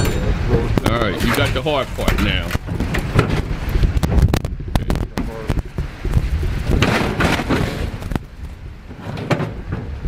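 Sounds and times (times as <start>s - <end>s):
metal scraping: 0.0s - 3.6s
low rumble: 0.0s - 9.0s
metal knocks and thuds: 0.0s - 10.0s.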